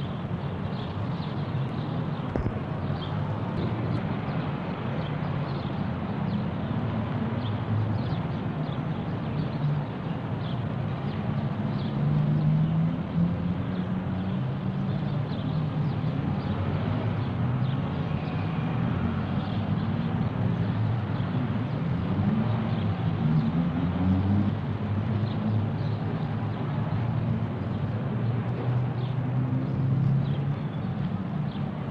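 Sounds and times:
distant motor traffic rumble: 0:01.0 - 0:04.9.

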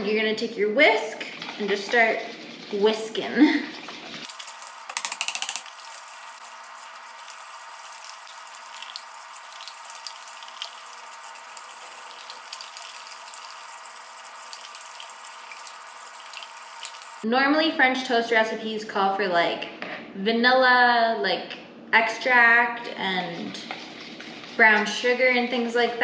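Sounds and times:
whisk beating liquid in bowl: 0:01.4 - 0:17.2, 0:23.4 - 0:25.8.

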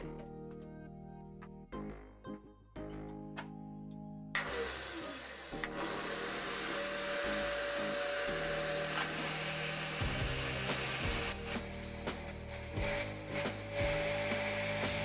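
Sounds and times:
angle grinder whine: 0:04.4 - 0:15.0.

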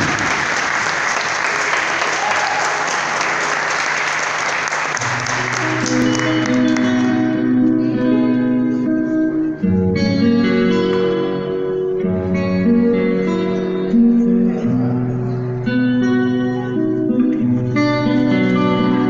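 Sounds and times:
audience applause: 0:00.0 - 0:07.4
acoustic guitar through pa: 0:05.0 - 0:19.0.

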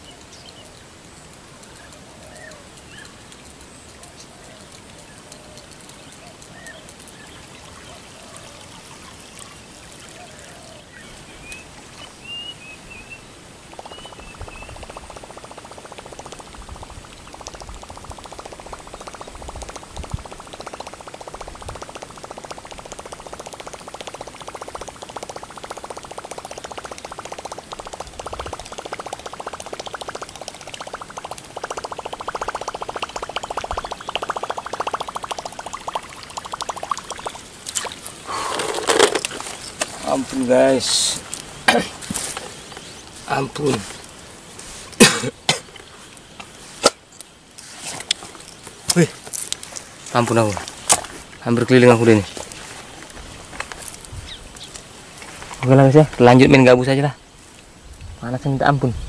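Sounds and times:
lure gurgling across water: 0:13.7 - 0:39.4
water splash: 0:13.7 - 0:40.2.

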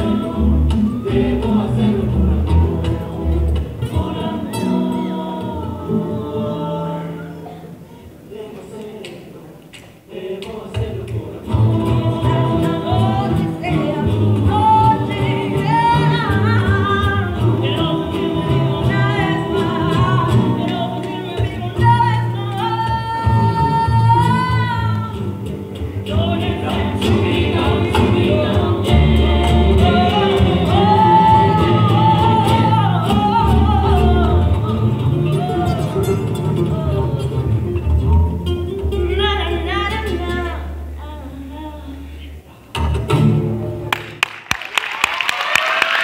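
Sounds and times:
strummed acoustic guitars: 0:00.0 - 0:07.7, 0:10.7 - 0:41.0, 0:42.7 - 0:43.9
voices singing: 0:00.0 - 0:37.7
bass line: 0:11.6 - 0:41.9.

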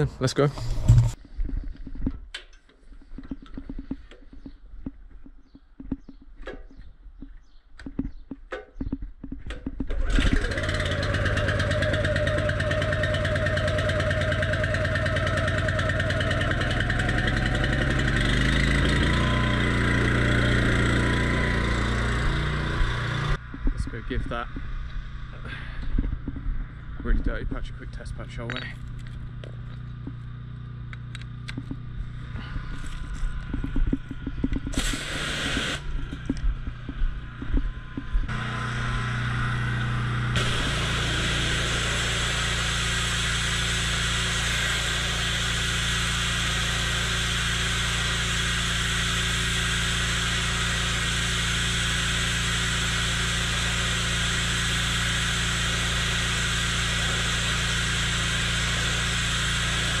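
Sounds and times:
low hum: 0:09.4 - 1:00.0
pressure washer jet hissing: 0:34.7 - 0:35.9, 0:38.4 - 1:00.0.

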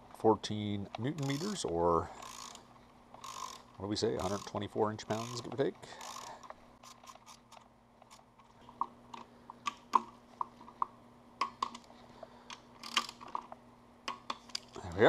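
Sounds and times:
faint steady hum: 0:00.0 - 0:15.0
torque wrench metallic clicks: 0:00.9 - 0:02.6, 0:03.2 - 0:08.2.

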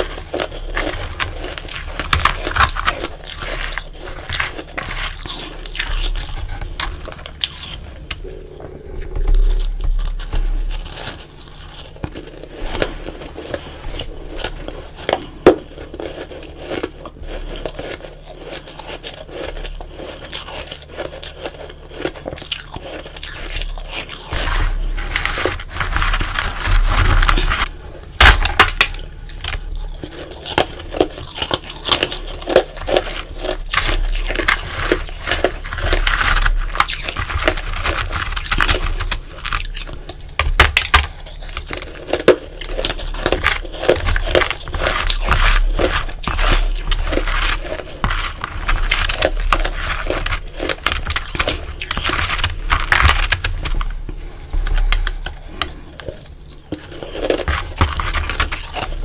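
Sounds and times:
ice crunching and crackling: 0:00.0 - 0:59.0.

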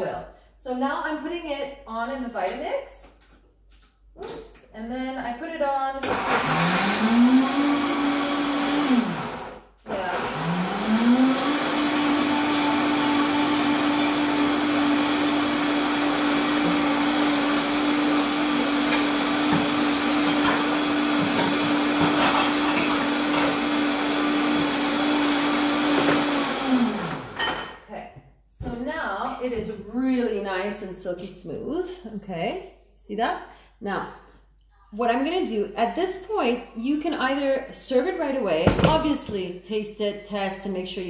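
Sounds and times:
blender motor running: 0:06.0 - 0:27.4.

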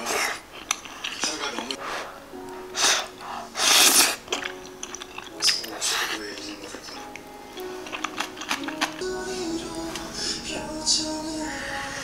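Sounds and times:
background music: 0:01.1 - 0:12.0
person slurping noodles: 0:02.8 - 0:06.2.

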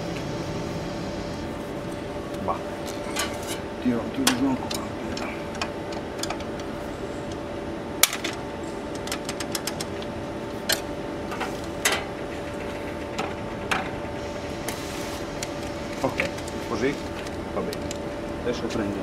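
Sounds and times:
steady hum: 0:00.0 - 0:19.0
metal parts clicking and knocking: 0:08.0 - 0:09.9.

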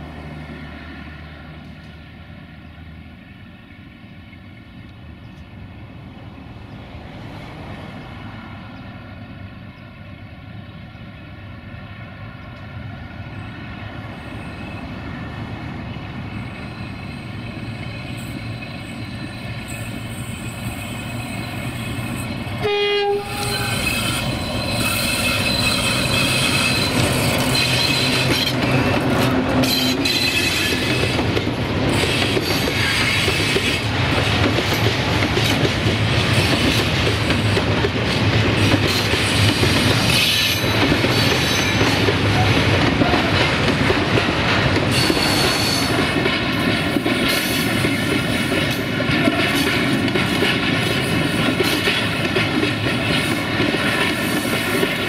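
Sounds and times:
diesel locomotive engine running: 0:00.0 - 0:55.0
train wagons rolling past: 0:00.0 - 0:55.0
locomotive horn blast: 0:22.1 - 0:31.2.

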